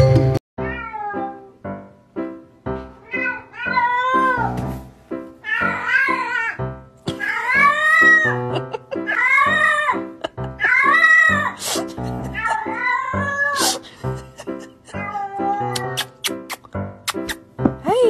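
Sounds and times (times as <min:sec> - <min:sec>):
cat meowing: 0:00.6 - 0:01.6, 0:03.0 - 0:04.6, 0:05.4 - 0:11.6, 0:12.2 - 0:13.8, 0:14.9 - 0:16.6.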